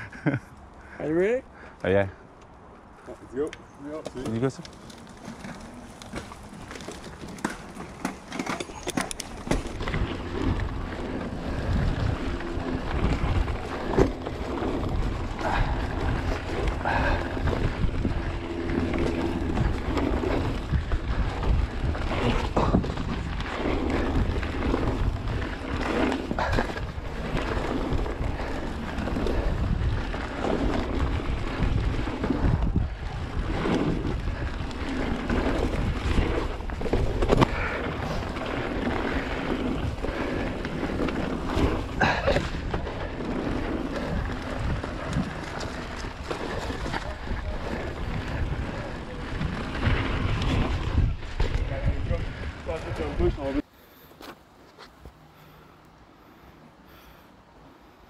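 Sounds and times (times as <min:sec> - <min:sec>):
bike rattling over rough ground: 0:03.2 - 0:55.6
wind rush on microphone: 0:09.4 - 0:53.6.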